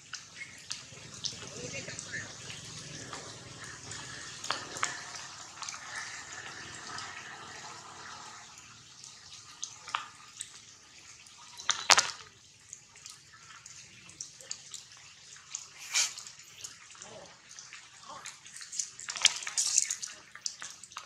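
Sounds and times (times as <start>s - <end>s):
rain falling on foliage: 0.0s - 8.0s.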